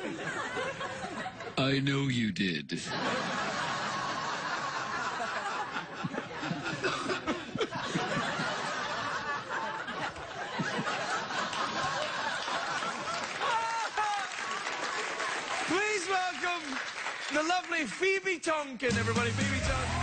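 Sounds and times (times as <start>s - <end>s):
audience laughing: 0.0s - 1.6s, 2.8s - 16.0s.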